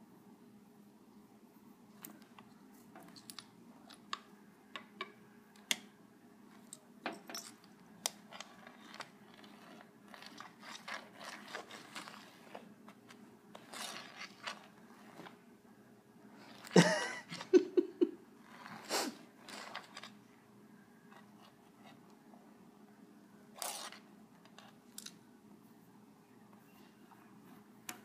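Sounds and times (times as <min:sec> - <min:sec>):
faint steady hum: 0:00.0 - 0:28.0
cat claws scratching rug: 0:08.0 - 0:15.4, 0:18.4 - 0:20.2.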